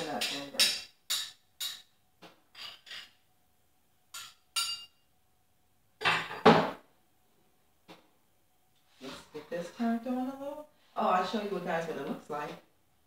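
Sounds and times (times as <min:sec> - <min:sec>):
metal utensil clinking on pan: 0:00.0 - 0:01.9, 0:04.1 - 0:05.0.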